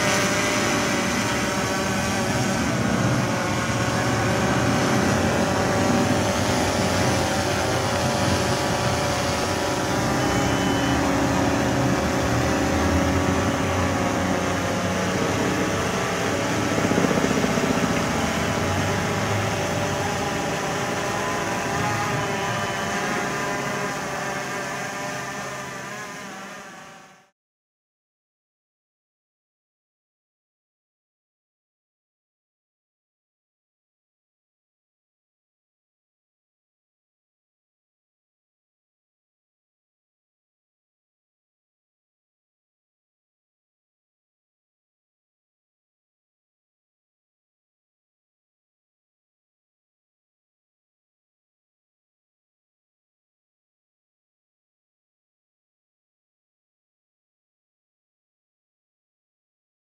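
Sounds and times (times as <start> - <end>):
drone propellers buzzing: 0.0 - 27.3.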